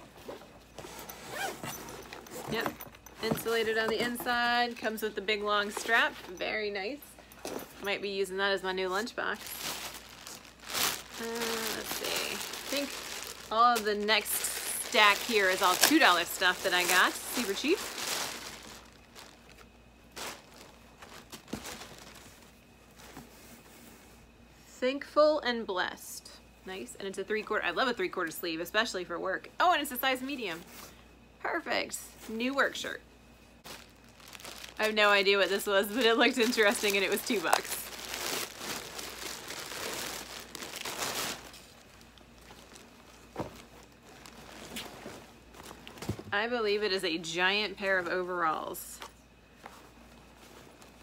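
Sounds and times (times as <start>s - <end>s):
plastic bag rustling: 0.0s - 23.9s, 33.6s - 46.3s, 49.6s - 51.0s.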